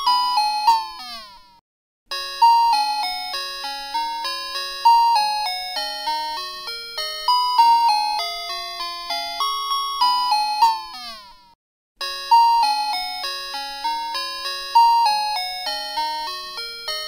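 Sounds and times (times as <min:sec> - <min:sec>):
bouncy electronic melody: 0:02.1 - 0:09.5, 0:12.0 - 0:17.0.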